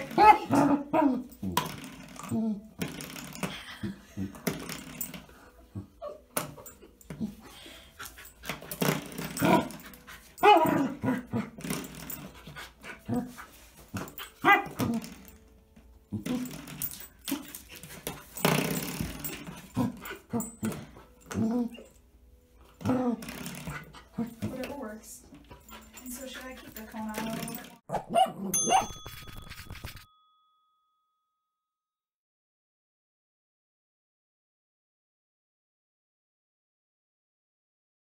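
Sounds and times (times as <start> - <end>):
puppy barking and whining: 0.0 - 1.5, 8.2 - 11.7, 12.3 - 15.4, 27.6 - 30.0.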